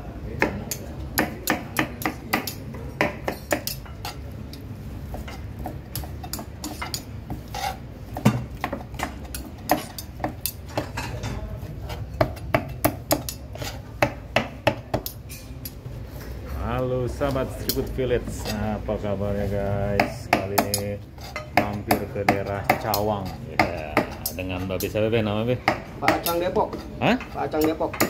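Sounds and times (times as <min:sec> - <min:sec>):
knife chopping on cutting board: 0:05.1 - 0:10.9.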